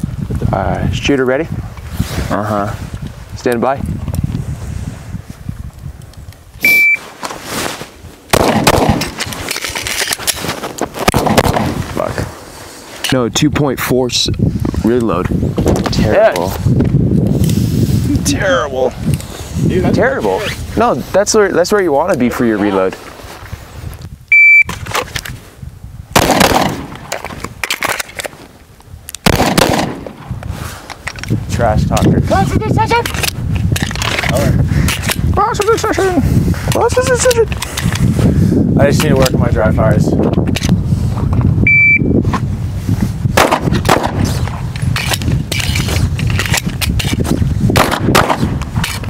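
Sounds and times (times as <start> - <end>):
shot timer beep: 6.6 - 7.0, 24.3 - 24.7, 41.7 - 42.2
pistol shot: 8.3 - 9.2, 26.2 - 27.1, 29.2 - 30.3, 43.4 - 44.4, 47.8 - 48.6
magazine change clicks and rattles: 9.0 - 10.4, 27.0 - 28.4, 33.0 - 35.2, 44.8 - 47.2.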